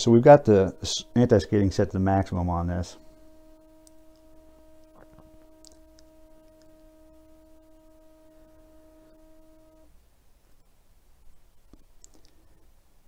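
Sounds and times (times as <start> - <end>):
faint steady test tone: 0.0 - 13.0
faint clicks: 3.8 - 6.8, 11.7 - 12.4.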